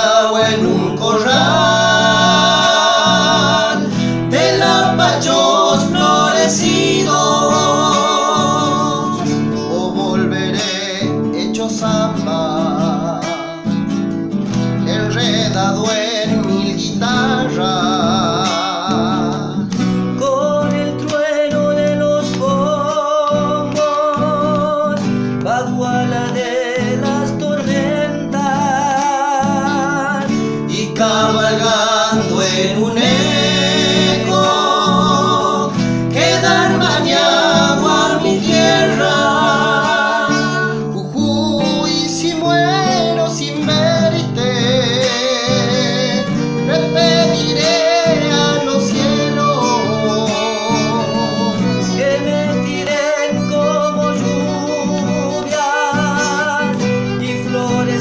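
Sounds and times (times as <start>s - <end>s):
acoustic guitar strumming: 0.0s - 58.0s
man singing folk song: 0.0s - 58.0s
violin playing: 0.7s - 9.7s, 31.2s - 41.0s, 41.8s - 57.9s.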